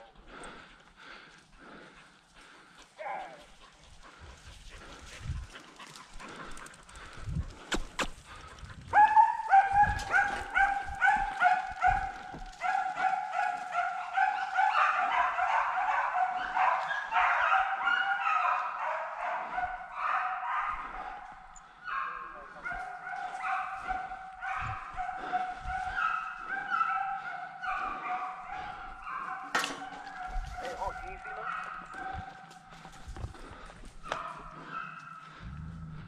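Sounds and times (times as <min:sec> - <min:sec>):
dogs yelping bays: 0:08.8 - 0:33.0, 0:34.0 - 0:35.5.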